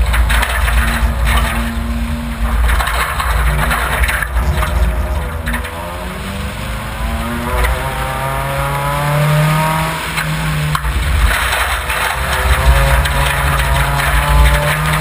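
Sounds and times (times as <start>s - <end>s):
gravel and mud hitting car: 0.0s - 15.0s
rally car engine revving: 0.0s - 15.0s.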